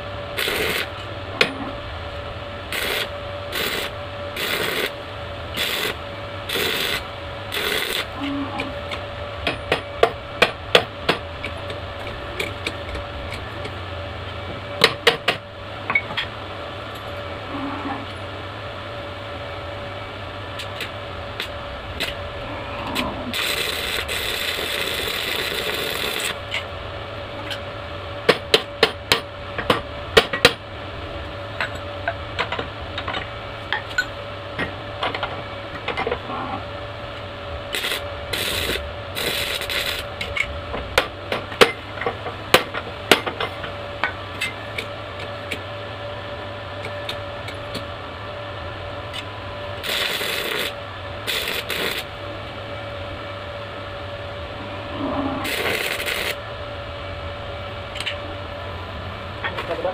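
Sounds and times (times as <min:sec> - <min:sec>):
arc welding crackling: 0:00.0 - 0:01.2, 0:02.1 - 0:09.2, 0:20.4 - 0:26.8, 0:37.1 - 0:41.1, 0:49.1 - 0:52.2, 0:55.4 - 0:56.4
steady hum: 0:00.0 - 0:59.9.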